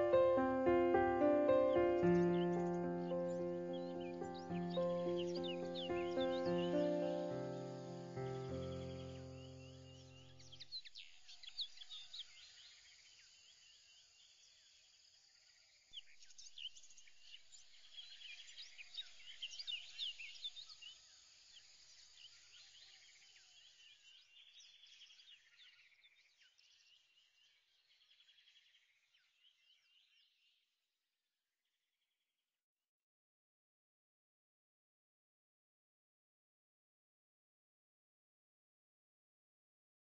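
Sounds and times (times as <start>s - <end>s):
birds chirping: 0.0s - 10.6s.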